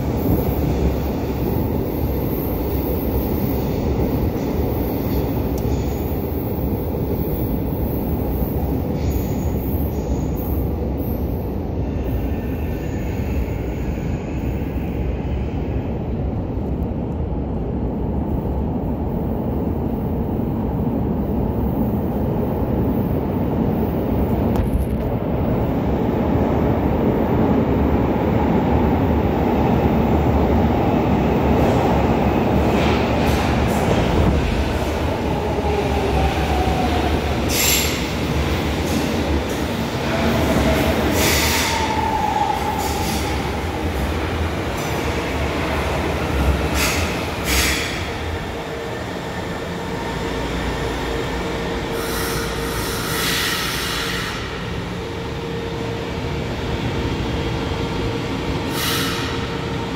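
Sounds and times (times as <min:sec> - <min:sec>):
train wheels rumbling on rail: 0:00.0 - 0:59.9
falling whines of train slowing: 0:25.9 - 0:59.9.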